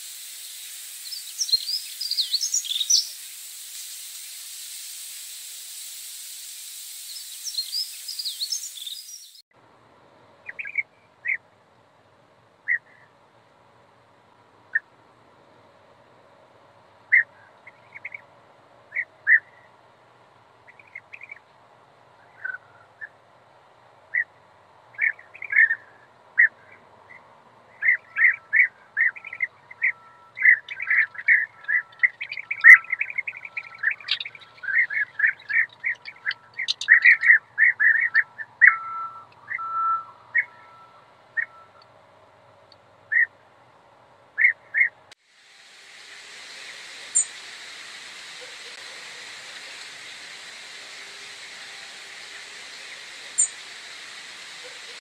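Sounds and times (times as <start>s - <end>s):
birds calling: 0.6s - 4.4s, 7.0s - 9.4s, 10.5s - 11.4s, 24.9s - 41.8s, 43.1s - 43.4s, 46.5s - 55.0s.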